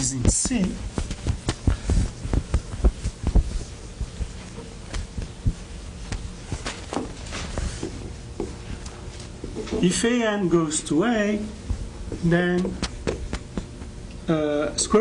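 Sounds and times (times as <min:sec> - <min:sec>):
chalk tapping on board: 0:00.0 - 0:06.7
low room hum: 0:00.0 - 0:15.0.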